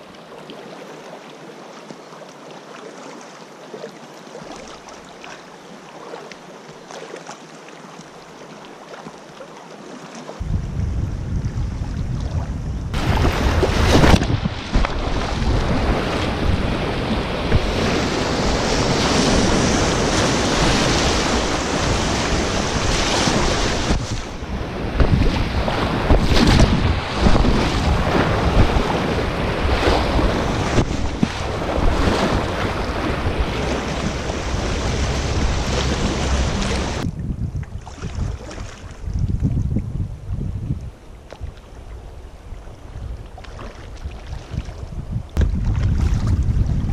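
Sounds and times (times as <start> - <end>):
wind rumbling on microphone: 10.4 - 46.9
river rapids rushing and splashing: 27.8 - 37.0.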